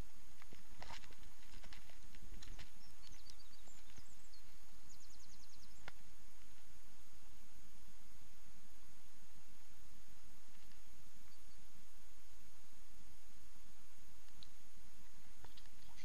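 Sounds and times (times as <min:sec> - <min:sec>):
small bird chirping: 0:00.0 - 0:06.7, 0:10.5 - 0:11.8, 0:14.2 - 0:16.0.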